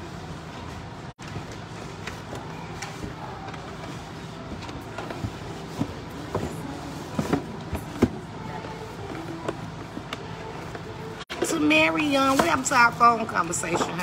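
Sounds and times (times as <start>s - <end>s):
shoe box handling knocks and rustles: 1.4s - 10.8s.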